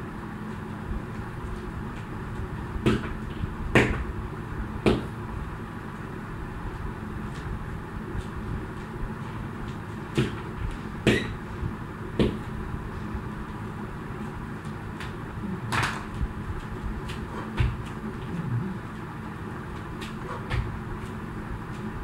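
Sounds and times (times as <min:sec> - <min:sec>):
low hum: 0:00.0 - 0:22.0
feet landing: 0:01.2 - 0:04.1, 0:07.3 - 0:11.4, 0:14.2 - 0:22.0
jump rope slapping floor: 0:09.7 - 0:10.5, 0:14.6 - 0:18.0, 0:19.7 - 0:21.9.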